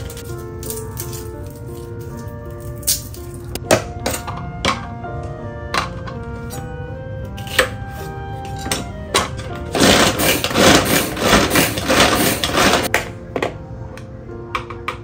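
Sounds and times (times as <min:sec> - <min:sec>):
background music: 0:00.0 - 0:15.0
manual food chopper whirring: 0:07.3 - 0:12.9.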